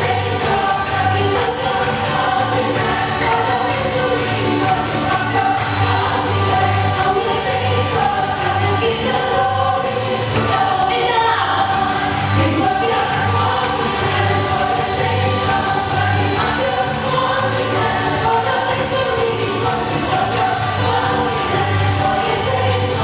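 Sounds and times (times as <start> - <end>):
choir singing worship song: 0.0 - 23.0.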